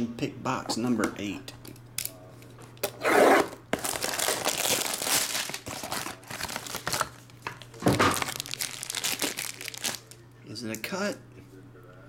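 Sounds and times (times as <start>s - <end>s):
plastic wrap tearing: 3.3s - 10.2s
plastic wrap crinkling: 3.6s - 10.2s.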